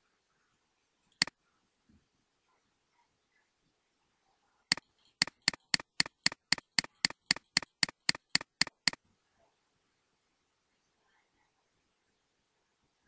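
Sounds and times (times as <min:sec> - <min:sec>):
mouse button clicking rapidly: 0:04.7 - 0:09.0.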